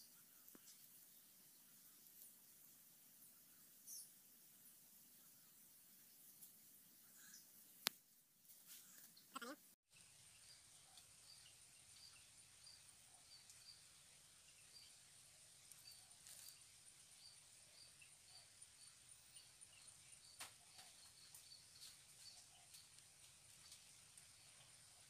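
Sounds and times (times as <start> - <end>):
insect chirping: 10.2 - 23.0.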